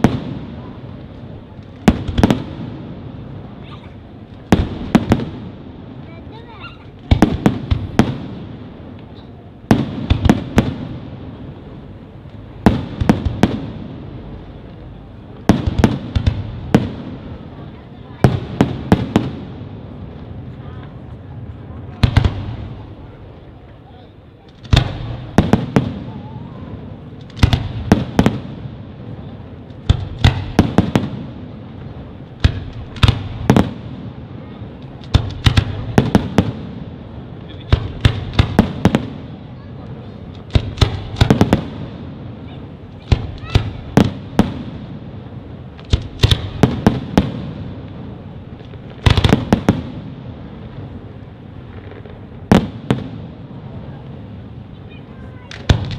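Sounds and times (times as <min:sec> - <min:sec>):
fireworks bangs: 0:00.0 - 0:55.9
rolling echo: 0:00.0 - 0:55.9
continuous low rumble: 0:11.0 - 0:52.5.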